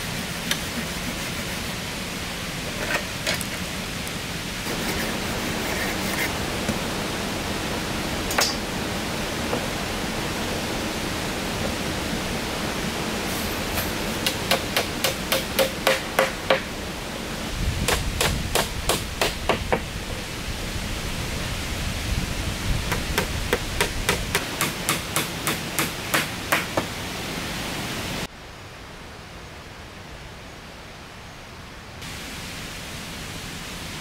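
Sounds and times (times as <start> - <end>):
background hiss: 0.0 - 34.0
hand tool striking wood: 8.3 - 8.6, 13.8 - 16.7, 17.9 - 19.9, 22.9 - 26.9.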